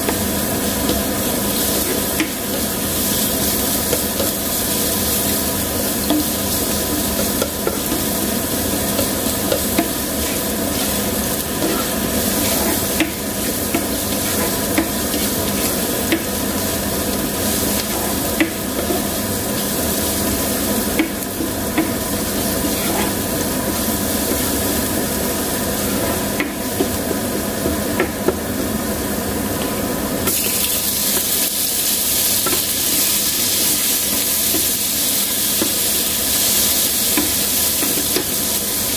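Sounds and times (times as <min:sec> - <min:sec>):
onion and garlic sizzling in oil: 0:00.0 - 0:38.9
spatula scraping a pan: 0:08.8 - 0:15.8, 0:22.6 - 0:23.2.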